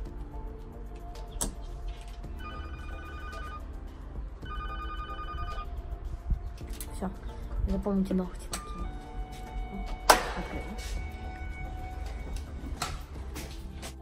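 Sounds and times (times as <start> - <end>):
intercom ring tones: 2.4 - 3.7, 4.4 - 5.8.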